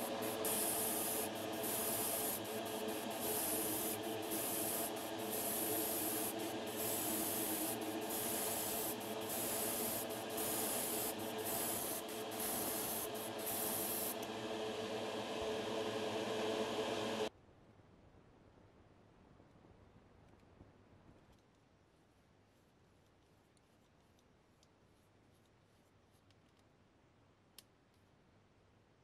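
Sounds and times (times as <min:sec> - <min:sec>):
airbrush spraying hiss: 0:00.0 - 0:17.2
air compressor humming: 0:00.0 - 0:17.3.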